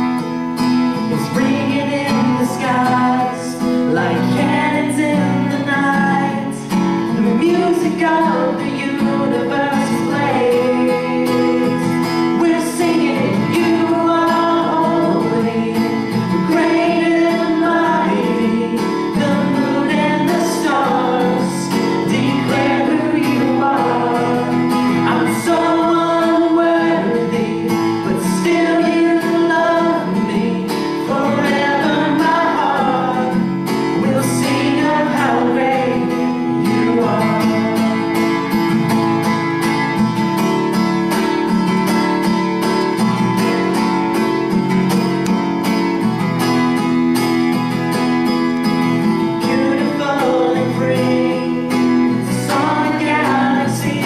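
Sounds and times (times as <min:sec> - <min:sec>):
acoustic guitar: 0:00.0 - 0:54.0
man and woman singing: 0:01.1 - 0:38.4, 0:49.4 - 0:54.0.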